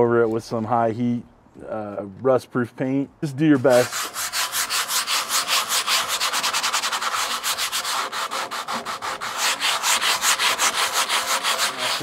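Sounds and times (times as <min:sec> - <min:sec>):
sandpaper scrubbing steel: 0:03.5 - 0:12.0.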